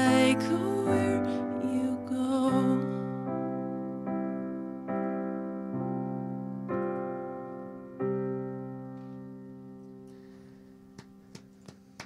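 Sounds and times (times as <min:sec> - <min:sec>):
woman singing with vibrato: 0:00.0 - 0:03.0
piano chords: 0:00.0 - 0:12.0.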